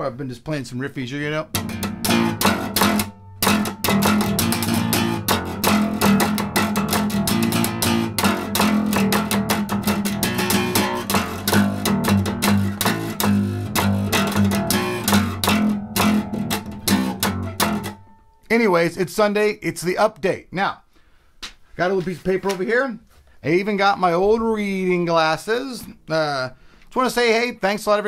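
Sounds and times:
acoustic bass guitar riff: 1.3 - 19.2.

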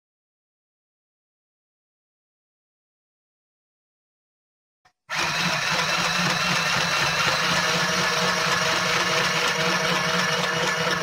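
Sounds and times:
sewing machine running: 5.1 - 11.0.

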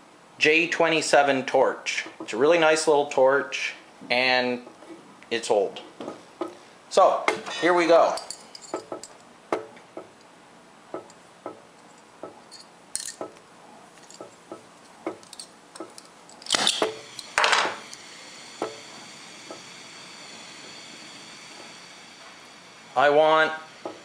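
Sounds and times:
gas ignition bursts: 16.5 - 24.0
torch flame hissing: 16.5 - 24.0.

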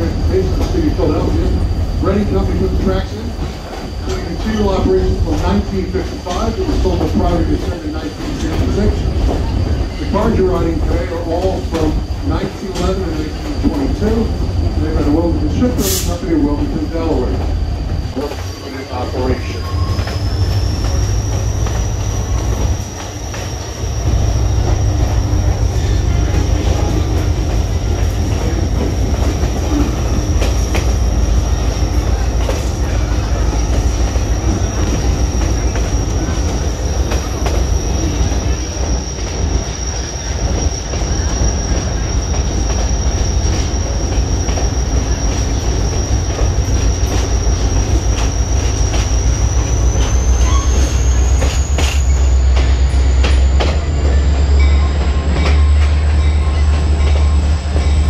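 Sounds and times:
train wheels rumbling on rail: 0.0 - 58.0
high wheel squeal: 18.1 - 58.0.

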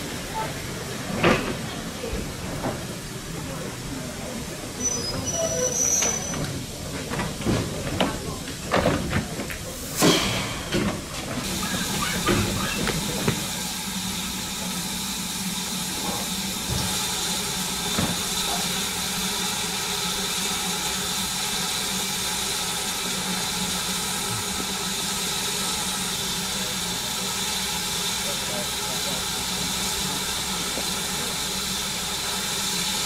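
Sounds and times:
steam hissing: 9.6 - 33.0.

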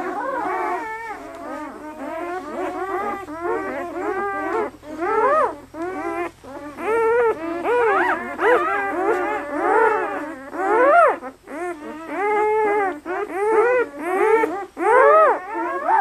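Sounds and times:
puppies squealing and whining: 0.0 - 16.0.

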